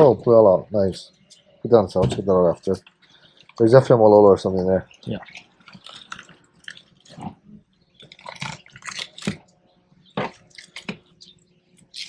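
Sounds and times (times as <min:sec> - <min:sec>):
wet squelching of fish flesh: 0:04.9 - 0:09.4.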